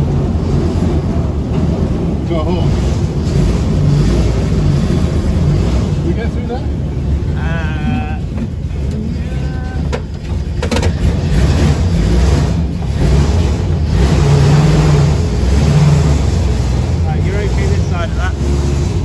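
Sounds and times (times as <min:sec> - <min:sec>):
truck engine running: 0:00.0 - 0:19.0.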